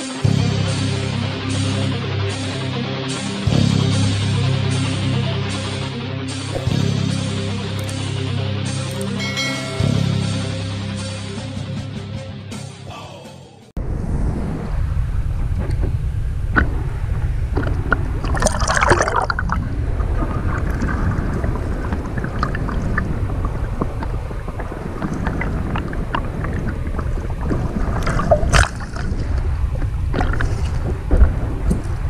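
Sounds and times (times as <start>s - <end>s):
water splashes: 6.6s - 8.0s, 16.5s - 32.0s
seawater sloshing and gurgling: 16.6s - 32.0s.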